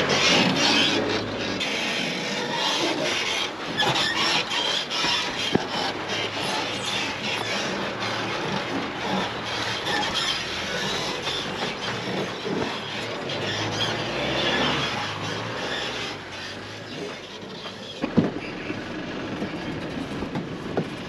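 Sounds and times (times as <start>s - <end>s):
vehicle clattering and rattling: 0.0s - 21.0s
low engine drone: 5.3s - 21.0s.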